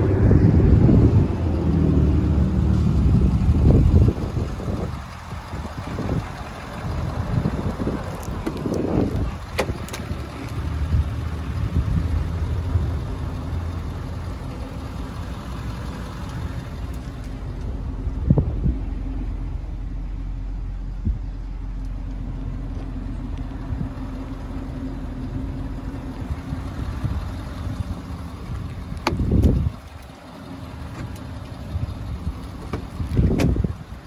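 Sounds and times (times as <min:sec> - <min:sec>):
diesel engine idling: 0:00.0 - 0:34.0
car door shutting: 0:08.3 - 0:10.1, 0:29.0 - 0:29.7, 0:32.6 - 0:33.7.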